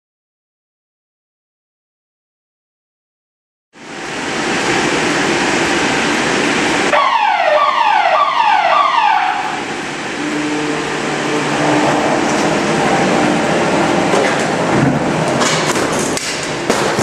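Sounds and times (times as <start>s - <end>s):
loud steady hiss: 3.8s - 7.0s, 9.4s - 14.0s
warning alarm falling tones: 6.9s - 14.0s.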